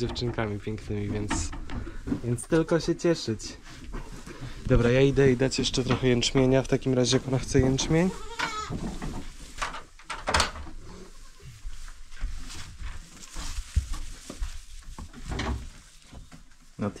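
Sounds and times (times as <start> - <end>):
knocks and bumps: 0.0 - 2.5
goats rustling: 0.3 - 17.0.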